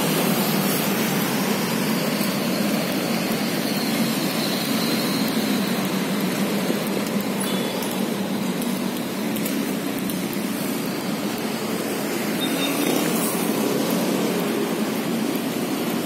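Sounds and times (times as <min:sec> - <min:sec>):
cars and motorbikes passing: 0:00.0 - 0:16.0.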